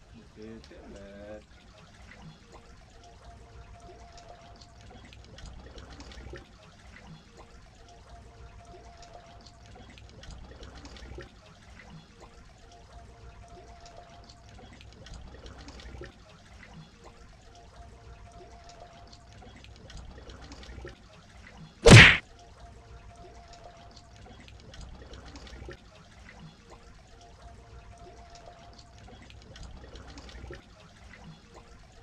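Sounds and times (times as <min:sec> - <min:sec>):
small splashes: 0:19.2 - 0:22.2.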